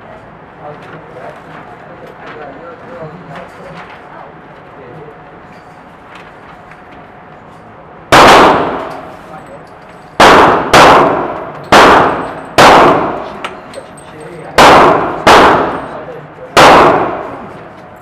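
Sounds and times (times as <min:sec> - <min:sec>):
gunshots with long echo: 0:08.1 - 0:09.2, 0:10.2 - 0:13.4, 0:14.6 - 0:17.6.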